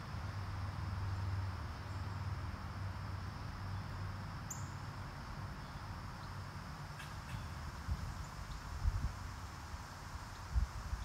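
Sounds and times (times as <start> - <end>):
insects droning: 0.0 - 11.0
bird chirp: 4.5 - 4.8.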